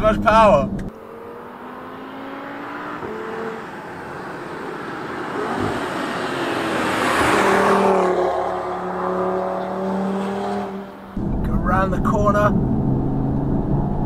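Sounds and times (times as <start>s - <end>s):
car accelerating past: 0.8s - 11.5s.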